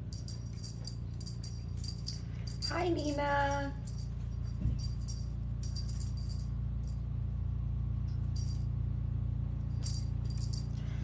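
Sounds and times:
jingle bell shaking: 0.0 - 7.0, 9.8 - 11.0
steady low hum: 0.0 - 11.0.

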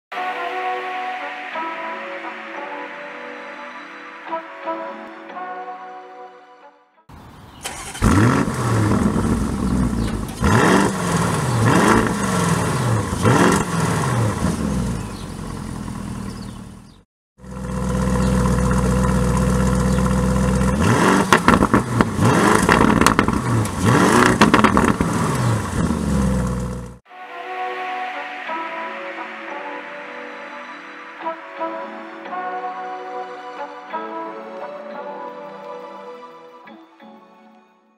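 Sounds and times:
car engine idling: 7.6 - 27.0
car engine revving: 7.6 - 27.0
exhaust crackles: 7.6 - 27.0.

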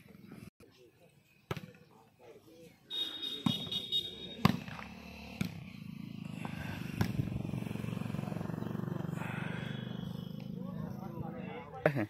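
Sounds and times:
motorcycle engine running: 4.1 - 11.8
volleyball slapped by hand: 7.0 - 7.2.

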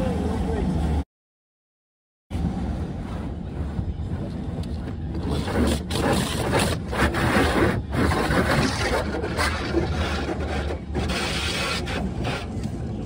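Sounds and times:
steady low hum: 2.3 - 7.0.

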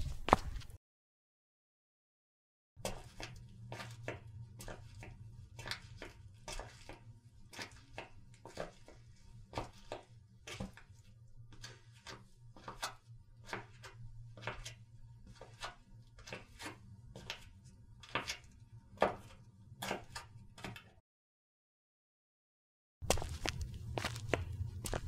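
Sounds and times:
footsteps walking: 0.0 - 0.8, 23.0 - 25.0.

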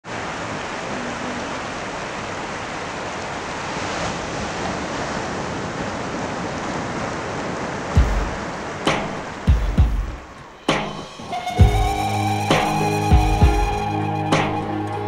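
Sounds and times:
waves washing up a beach: 0.0 - 13.8.

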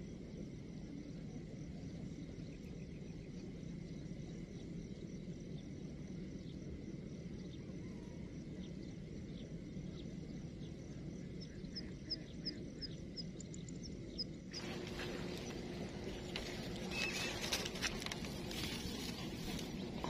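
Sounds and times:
rough rustling and crackling: 14.6 - 20.0.

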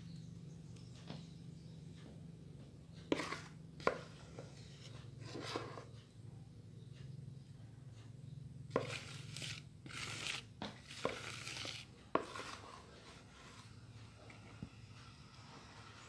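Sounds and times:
steady low hum: 0.0 - 16.0
scraping and rustling: 8.7 - 13.8.

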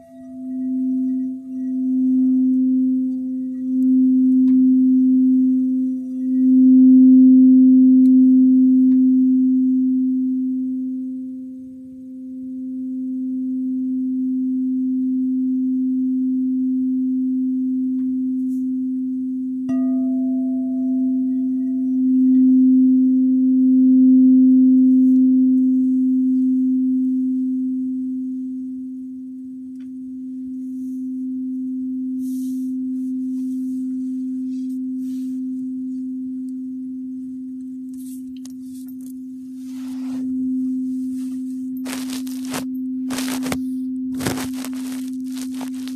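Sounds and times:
singing bowl strike ringing: 0.0 - 10.9, 19.6 - 29.3
singing bowl low tone: 0.0 - 44.2
scattered clicks: 41.8 - 43.6, 44.2 - 45.9.

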